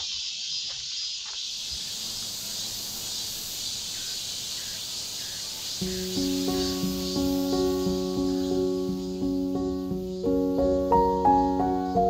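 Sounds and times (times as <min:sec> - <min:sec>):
insects hissing: 0:00.0 - 0:12.0
background music: 0:05.8 - 0:12.0.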